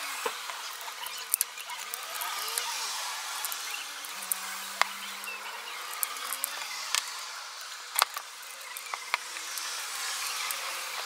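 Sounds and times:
clicks and taps of small parts: 0:05.9 - 0:07.1, 0:07.9 - 0:09.7.

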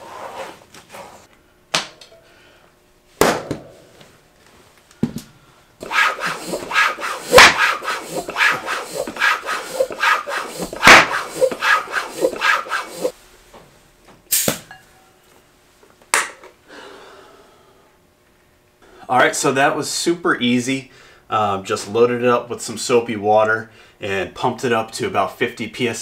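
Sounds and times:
floor pump strokes: 0:00.0 - 0:01.3, 0:05.8 - 0:13.2
tire bead popping: 0:10.7 - 0:11.2
sharp knock: 0:10.8 - 0:11.3
short hiss: 0:14.3 - 0:14.5.

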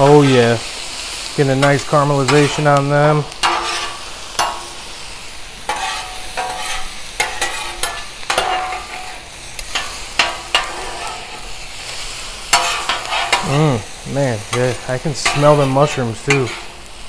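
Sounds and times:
vegetables sizzling on griddle: 0:00.0 - 0:17.0
metal spatulas scraping steel: 0:01.6 - 0:04.8, 0:05.7 - 0:11.5, 0:12.5 - 0:13.6, 0:14.5 - 0:16.9.

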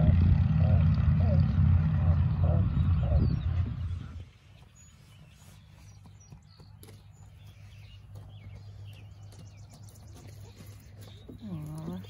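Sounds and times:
low hum: 0:00.0 - 0:06.3.

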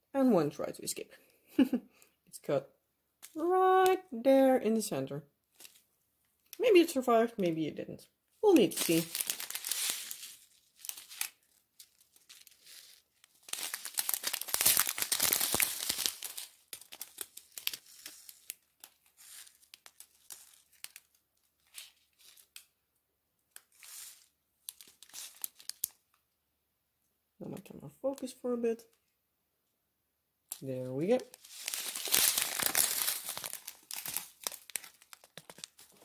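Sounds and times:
plastic bags crinkling: 0:08.4 - 0:22.6, 0:23.6 - 0:26.0, 0:31.2 - 0:36.0.

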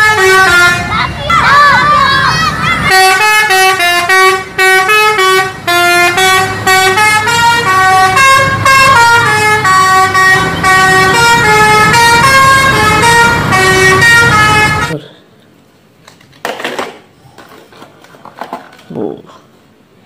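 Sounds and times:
musical multi-tone air horn: 0:00.0 - 0:01.0, 0:02.8 - 0:15.0
engine and traffic rumble: 0:00.0 - 0:20.0.

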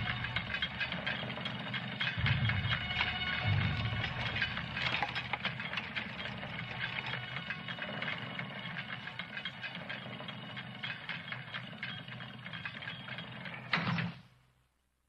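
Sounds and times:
machinery rattling and grinding: 0:00.0 - 0:14.2
machinery clatter: 0:00.0 - 0:14.3
low hum: 0:02.0 - 0:06.8.

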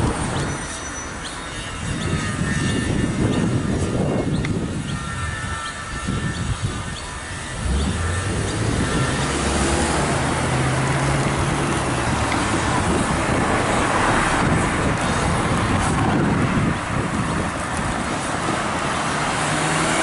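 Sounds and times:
cars driving past: 0:07.3 - 0:20.0.

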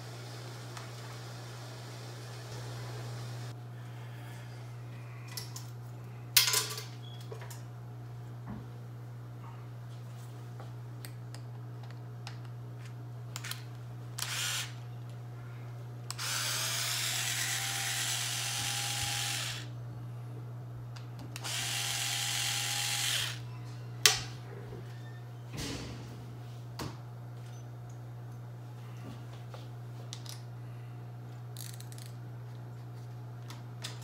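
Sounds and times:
electric screwdriver whirring: 0:14.2 - 0:14.8, 0:16.1 - 0:19.7, 0:21.4 - 0:23.4
parts and tools clicking: 0:31.6 - 0:32.2.

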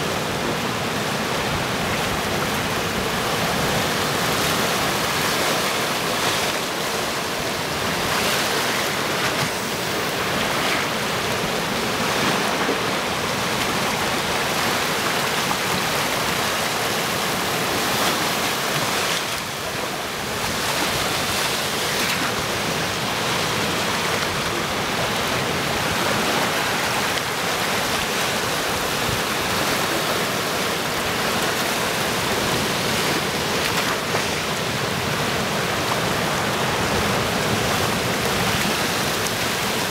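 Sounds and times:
sea surf rushing among rocks: 0:00.0 - 0:39.9
waves splashing against rocks: 0:00.0 - 0:39.9.

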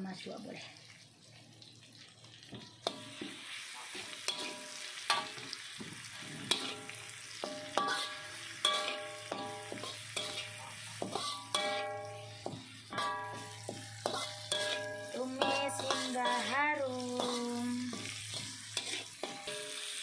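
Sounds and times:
sizzle of frying: 0:00.0 - 0:20.0
metal spatula scraping wok: 0:02.8 - 0:20.0
wok ringing: 0:04.0 - 0:05.6, 0:06.5 - 0:20.0.

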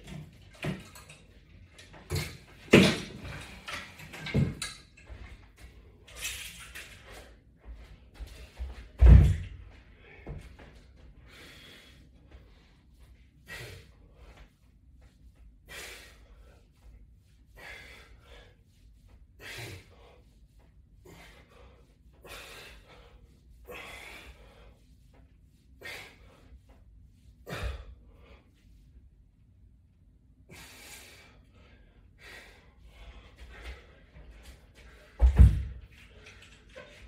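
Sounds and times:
man breathing hard: 0:09.7 - 0:14.7, 0:15.6 - 0:26.7, 0:27.4 - 0:28.8, 0:30.4 - 0:37.0.

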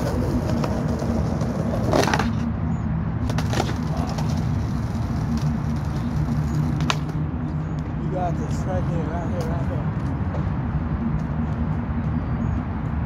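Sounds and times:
skateboard clacks: 0:00.0 - 0:02.4, 0:03.2 - 0:07.2
skateboard wheels rolling on concrete: 0:00.0 - 0:02.6, 0:03.2 - 0:13.0.

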